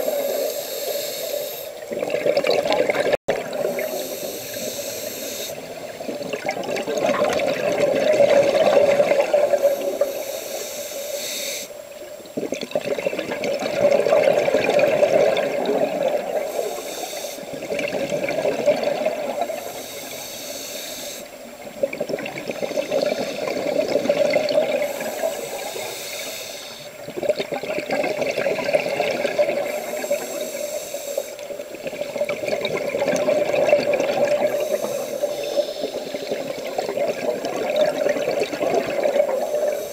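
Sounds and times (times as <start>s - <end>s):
diver breathing through regulator: 0.0s - 1.8s, 3.6s - 5.7s, 9.4s - 11.8s, 16.4s - 17.6s, 19.5s - 21.3s, 22.6s - 27.0s, 29.4s - 31.5s, 34.2s - 36.3s, 39.2s - 39.9s
bubbles gurgling underwater: 1.8s - 4.7s, 5.6s - 10.2s, 12.0s - 16.8s, 17.5s - 19.8s, 21.5s - 25.8s, 27.0s - 30.3s, 31.5s - 39.8s.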